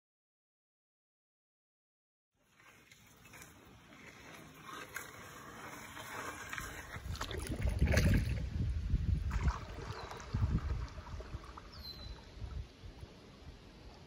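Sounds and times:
river water flowing over gravel: 2.4s - 8.6s, 9.2s - 14.0s.

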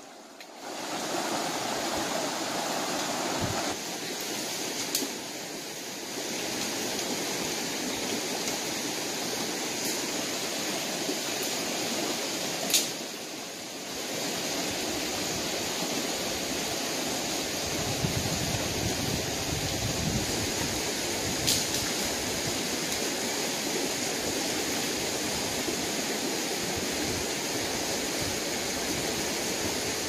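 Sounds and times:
stream rushing over rocks: 0.0s - 30.0s
sharp click: 12.7s - 13.0s.

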